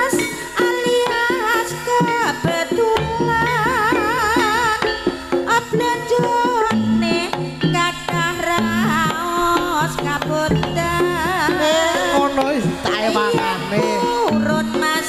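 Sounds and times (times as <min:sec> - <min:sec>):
hand drum strokes: 0:00.0 - 0:15.0
high wavering melody: 0:02.0 - 0:15.0.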